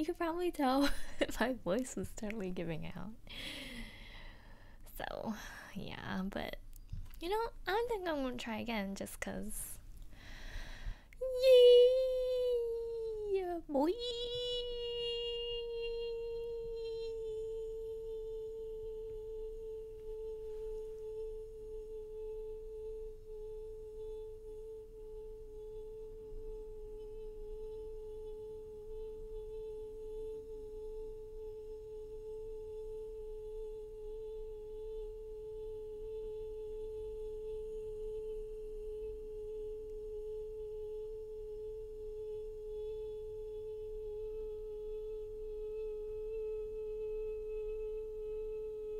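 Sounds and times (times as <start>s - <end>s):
woman singing long high note: 11.2s - 48.9s.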